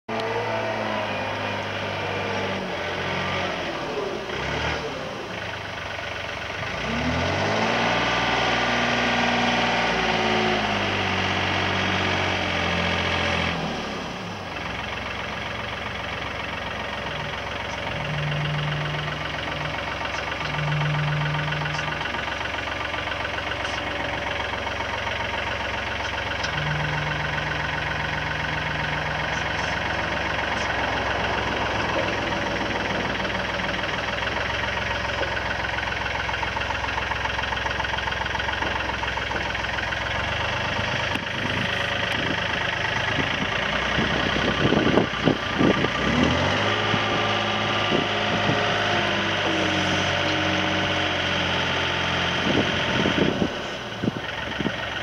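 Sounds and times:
wheel loader diesel engine: 0.1 - 55.0
short steady whines: 17.0 - 24.6, 25.3 - 34.2.

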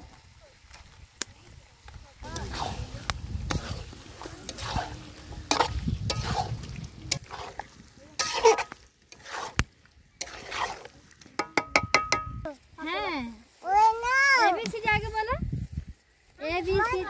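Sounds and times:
spoon scraping chicken in a pot: 3.4 - 9.6, 10.2 - 12.1.

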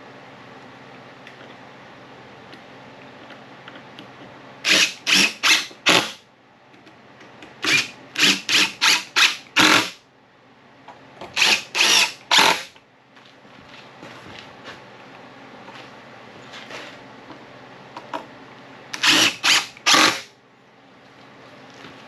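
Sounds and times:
cordless drill bursts into wood: 4.7 - 6.2, 7.7 - 9.9, 11.4 - 12.7, 19.0 - 20.3.

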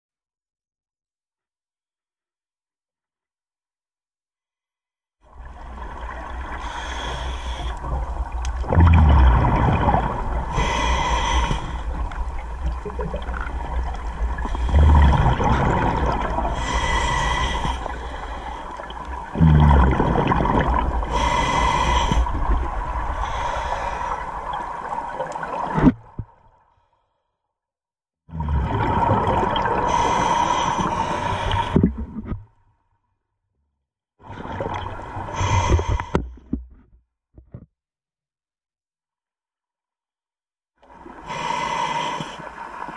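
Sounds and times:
regulator inhale hiss: 6.6 - 8.0, 10.5 - 12.1, 16.5 - 18.9, 21.0 - 22.5, 23.2 - 24.5, 29.9 - 31.8, 35.3 - 36.2, 41.1 - 42.8
exhaled bubbles rushing: 7.8 - 10.8, 11.9 - 17.1, 18.8 - 21.3, 28.4 - 30.1.

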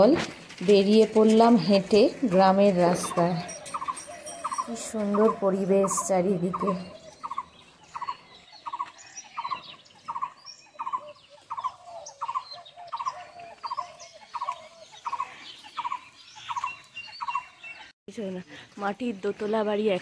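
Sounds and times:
higher bird chirps: 3.0 - 17.9.

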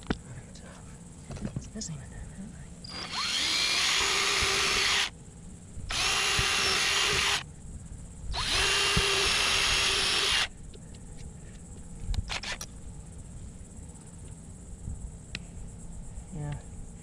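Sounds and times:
cordless drill boring into plastic: 2.9 - 5.1, 5.9 - 7.4, 8.4 - 10.5.

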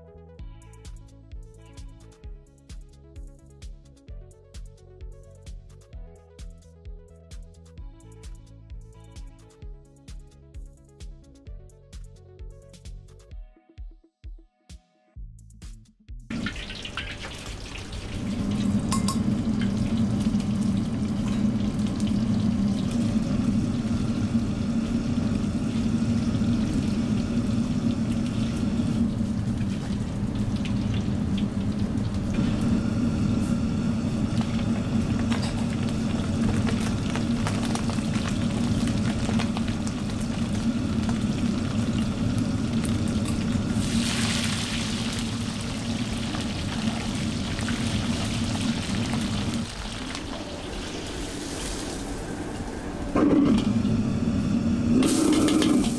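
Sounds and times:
oil sizzling in a wok: 16.3 - 53.4, 54.0 - 55.9
gas burner rumble: 16.3 - 55.9.

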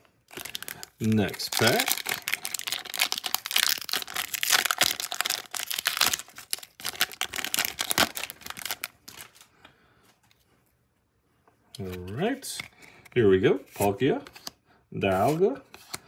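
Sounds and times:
foil wrapper tearing and crinkling: 0.3 - 9.4.

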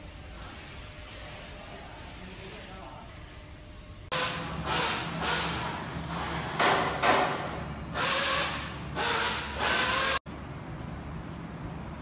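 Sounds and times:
low machine hum: 0.0 - 12.0
compressed-air hiss bursts: 4.1 - 5.8, 7.9 - 10.2.

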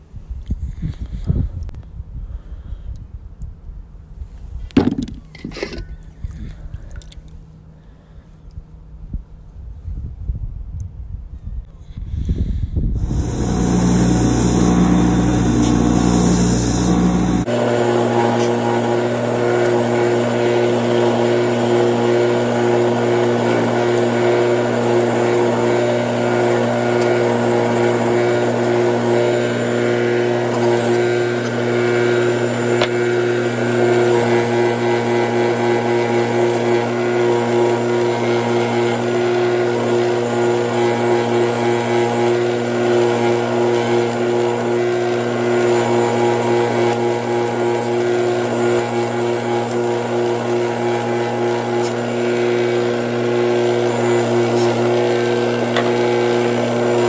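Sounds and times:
bench grinder motor hum: 13.0 - 57.0.

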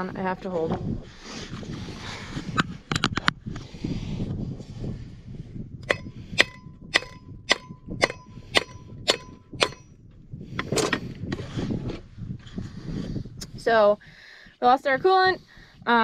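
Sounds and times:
dull metal clatter: 5.8 - 9.9
hammer striking metal: 5.8 - 9.9.

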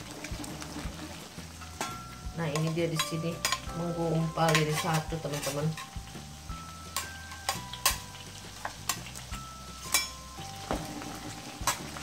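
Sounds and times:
batter sizzling in oil: 0.0 - 12.0
metal ladle clinking on wok: 1.8 - 6.0, 9.8 - 10.3.

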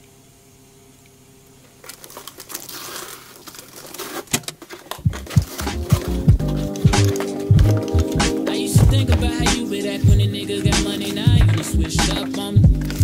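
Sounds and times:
cardboard box rustling: 1.8 - 13.0
music beat with deep bass: 5.0 - 13.0.

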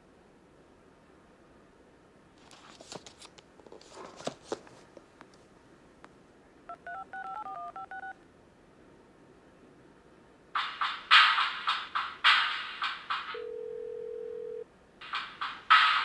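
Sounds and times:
soft clicks and rustles: 2.4 - 6.2
phone keypad touch-tones: 6.7 - 8.2.

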